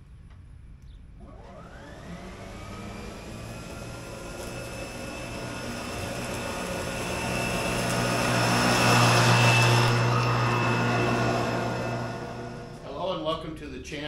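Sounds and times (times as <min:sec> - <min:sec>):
electric lawn mower cutting grass: 0:01.2 - 0:13.0.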